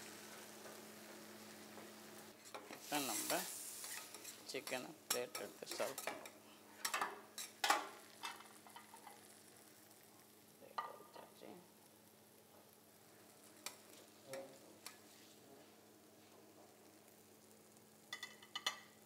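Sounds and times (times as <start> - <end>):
griddle sizzling: 0.0 - 19.0
metal spatula scraping griddle: 2.4 - 4.8.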